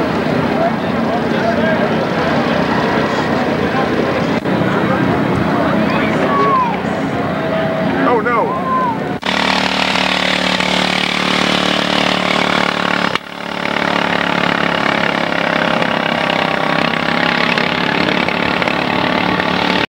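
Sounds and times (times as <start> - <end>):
engine running steadily: 0.0 - 19.9.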